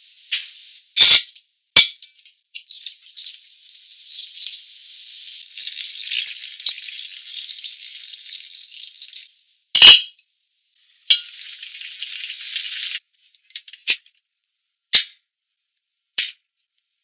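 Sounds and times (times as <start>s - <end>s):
water pouring from a kettle: 2.6s - 9.3s, 11.1s - 13.0s.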